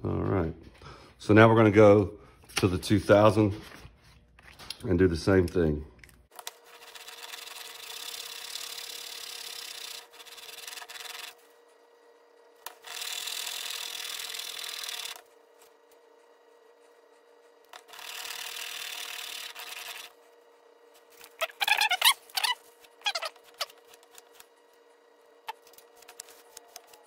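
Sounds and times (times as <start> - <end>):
blade rasping on abrasive paper: 6.5 - 11.4, 17.8 - 20.2.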